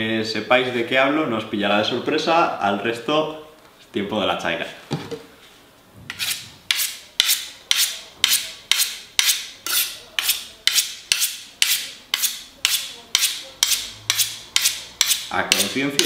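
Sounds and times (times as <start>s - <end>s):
knife scraping on honing rod: 6.1s - 16.0s.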